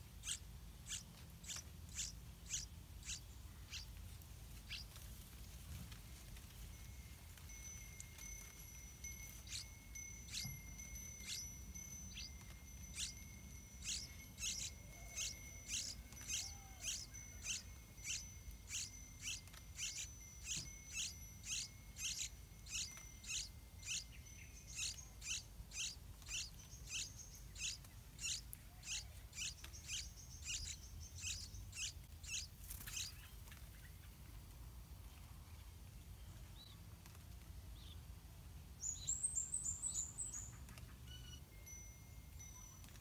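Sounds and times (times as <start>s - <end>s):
nestling chirping: 0.2s - 4.0s, 4.6s - 5.0s, 7.5s - 33.3s.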